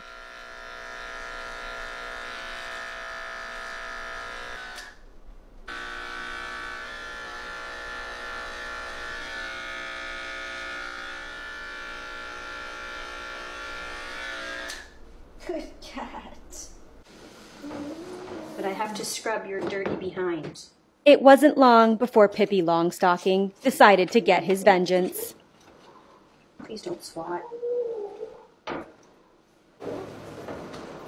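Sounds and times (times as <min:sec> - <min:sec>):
electric pet clippers buzzing: 0:00.0 - 0:05.0, 0:05.7 - 0:15.0.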